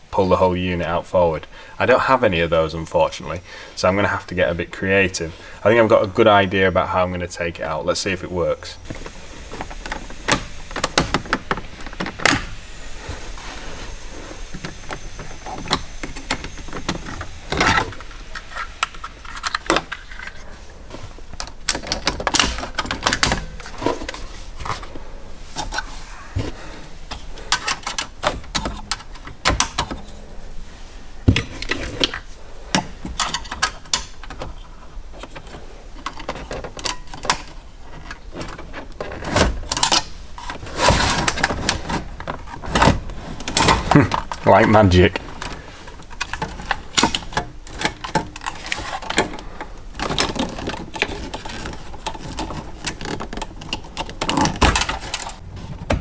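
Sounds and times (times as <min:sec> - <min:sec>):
plastic and metal clicks and clatter: 0:45.4 - 0:55.4.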